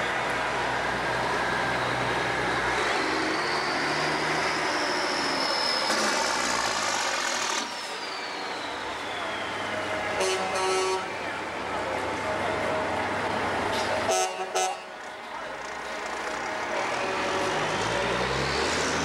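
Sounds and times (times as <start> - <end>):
heavy truck driving past: 0.0 - 10.2, 15.1 - 19.0.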